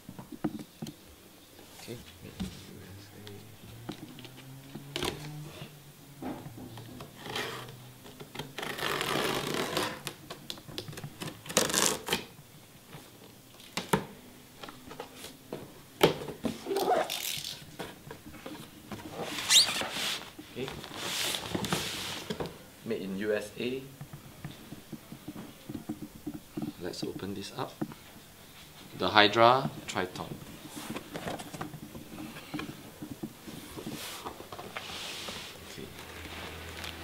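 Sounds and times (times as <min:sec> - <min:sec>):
packing tape ripping: 0:08.4 - 0:10.2, 0:11.2 - 0:12.3, 0:16.6 - 0:17.6.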